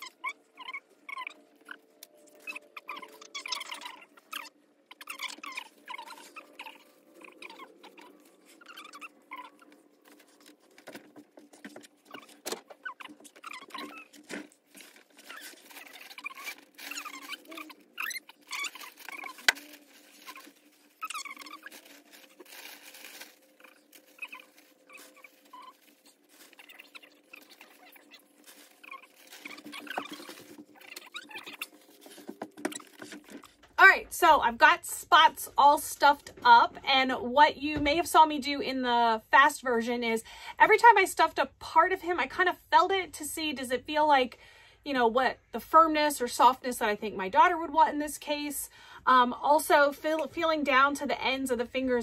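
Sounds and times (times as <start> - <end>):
high-pitched squeaky chirps: 0.0 - 10.4, 12.1 - 14.2, 15.2 - 22.4, 23.5 - 32.9
fabric and stuffing rustling: 9.4 - 33.6.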